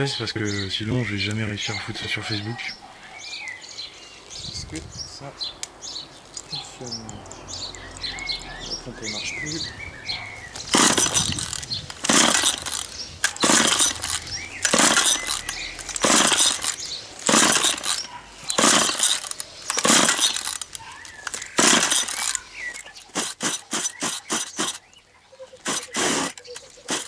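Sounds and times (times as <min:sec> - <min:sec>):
short clicks: 0:10.5 - 0:25.0, 0:25.6 - 0:27.0
recoil pull-starter yanked: 0:10.6 - 0:24.9, 0:25.6 - 0:27.0.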